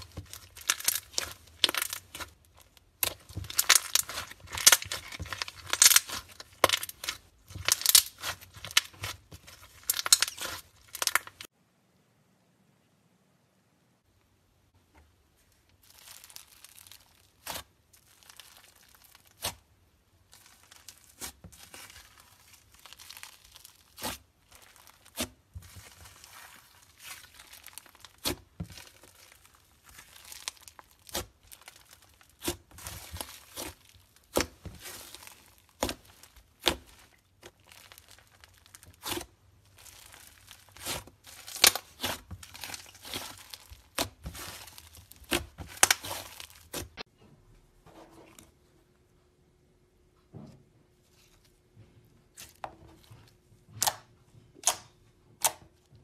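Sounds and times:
slime squished by hand: 0.0s - 11.5s, 15.8s - 47.1s.

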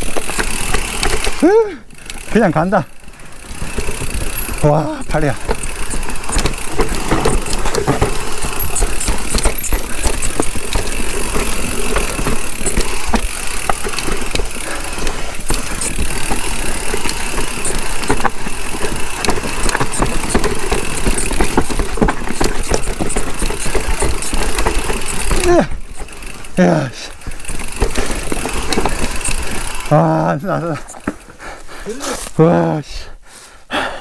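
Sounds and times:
bike rattling and clicking: 0.0s - 32.4s
wind and tyre noise: 0.0s - 32.8s.

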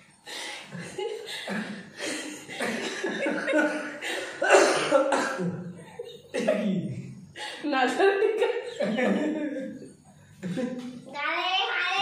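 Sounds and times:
men laughing: 0.7s - 6.9s, 8.1s - 10.9s.

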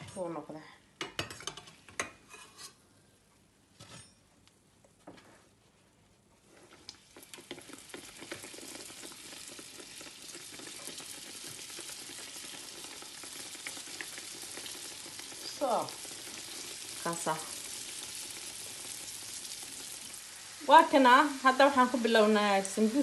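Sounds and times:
pastries sizzling in hot oil: 6.4s - 23.0s.

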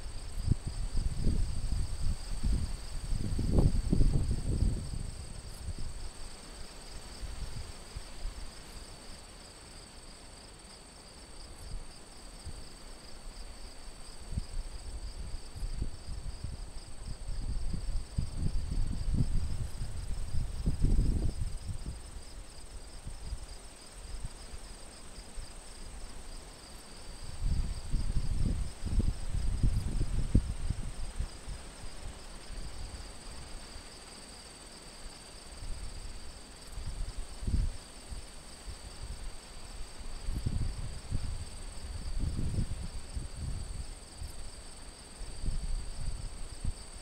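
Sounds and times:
wind rumbling on microphone: 0.0s - 6.4s, 14.0s - 24.4s, 27.0s - 33.6s, 35.7s - 47.0s
crickets chirping: 0.0s - 47.0s.

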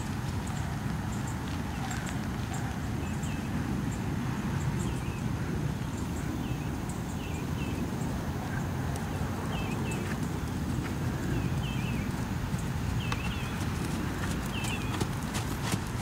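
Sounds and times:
horse hoofbeats on sand: 9.6s - 16.0s.

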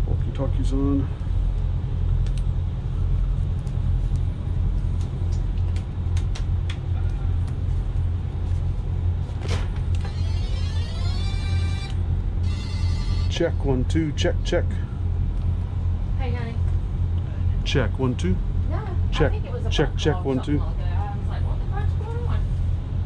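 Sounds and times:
diesel engine idling: 0.0s - 23.0s
electronic warble: 10.0s - 13.4s.

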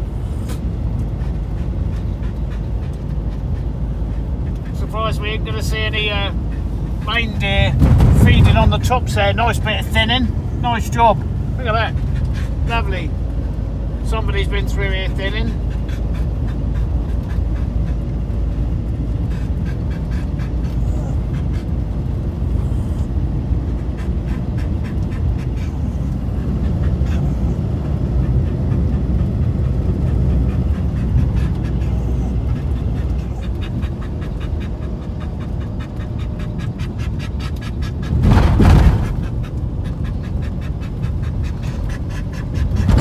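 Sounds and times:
van driving over snow: 0.0s - 15.8s
dog panting: 0.0s - 43.0s.

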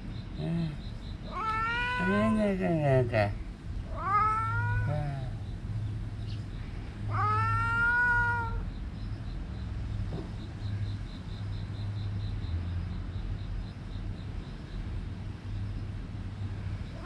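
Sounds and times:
cat meowing: 1.3s - 2.4s, 3.9s - 5.4s, 7.1s - 8.6s.

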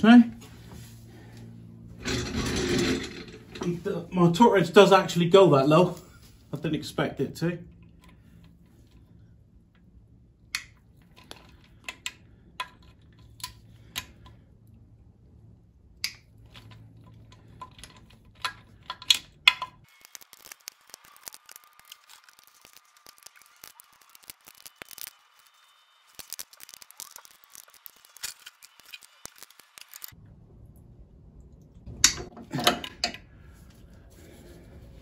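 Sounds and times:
low hum: 7.6s - 35.0s
torque wrench clicking: 19.5s - 25.5s, 26.2s - 30.2s.

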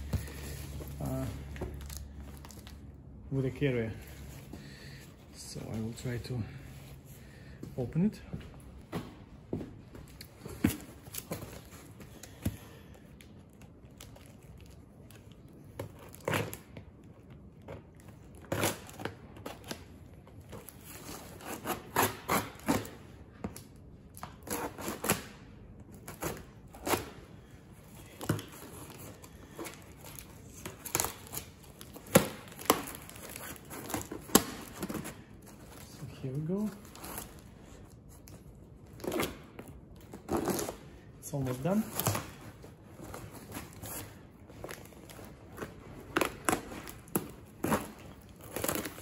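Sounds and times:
tape and cardboard tearing: 10.2s - 49.0s.

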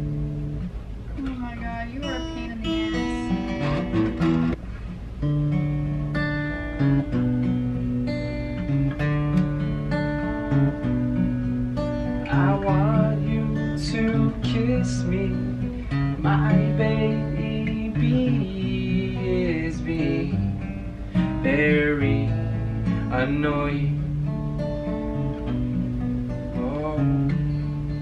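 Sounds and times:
acoustic guitar strumming chords: 0.0s - 28.0s
man singing: 12.3s - 20.6s, 21.2s - 24.1s, 26.5s - 27.5s.

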